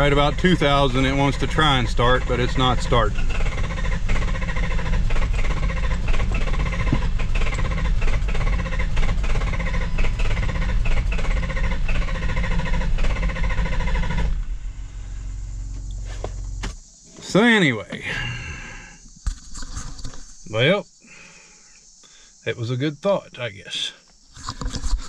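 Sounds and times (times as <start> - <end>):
diesel engine cranking: 0.0 - 20.7.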